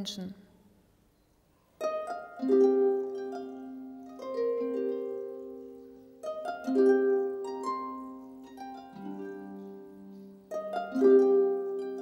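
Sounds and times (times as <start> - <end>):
plucked string instrument: 1.8 - 12.0.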